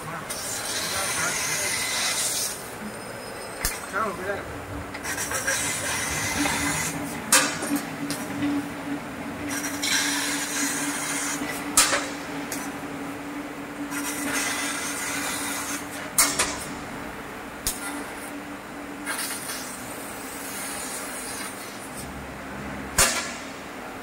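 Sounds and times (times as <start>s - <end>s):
cutting gas jet hissing: 0.0s - 8.3s, 9.5s - 12.7s, 13.9s - 16.8s, 19.0s - 22.1s
steady machine hum: 0.0s - 24.0s.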